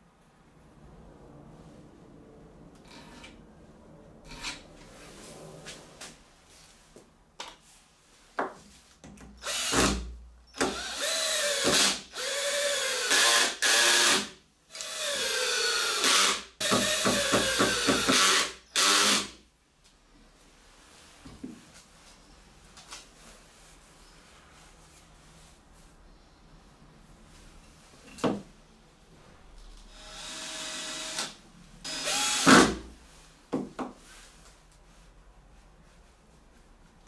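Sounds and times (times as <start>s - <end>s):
cordless drill driving screws: 9.4s - 19.3s, 29.9s - 32.8s
drill trigger bursts: 9.4s - 19.3s, 29.9s - 32.8s.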